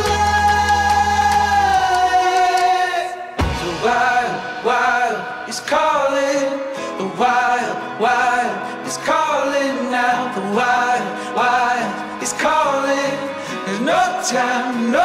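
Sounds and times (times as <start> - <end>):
song with singing: 0.0 - 15.0.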